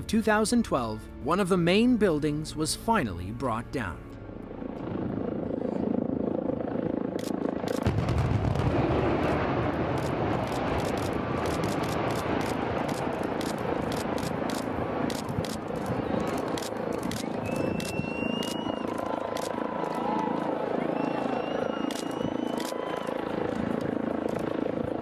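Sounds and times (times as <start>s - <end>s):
building collapsing rumble: 7.8s - 13.2s
explosive charges cracking: 7.8s - 13.2s.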